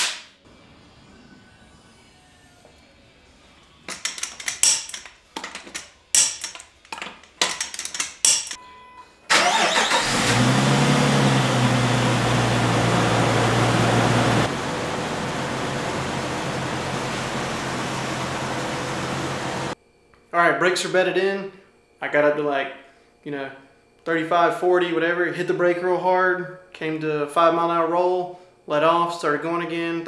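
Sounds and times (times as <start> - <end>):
car engine starting and idling: 9.3 - 19.8.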